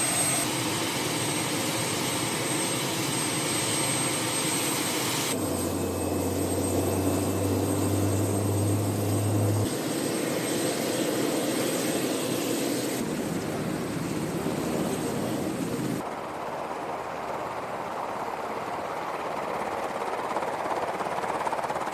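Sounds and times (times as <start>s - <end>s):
helicopter turbines and rotors: 0.0s - 21.9s
low hum: 5.4s - 9.7s.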